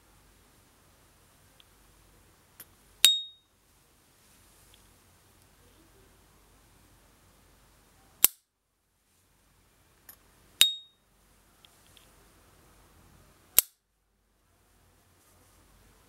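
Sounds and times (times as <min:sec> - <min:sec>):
lighter ringing ping: 0:03.0 - 0:03.4, 0:10.6 - 0:11.0.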